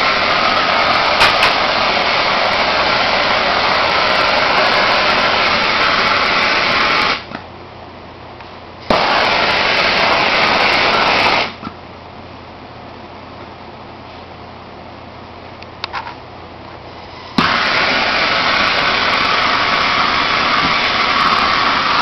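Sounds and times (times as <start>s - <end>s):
torch flame hissing: 0.0s - 7.4s, 8.8s - 11.7s, 16.9s - 22.0s.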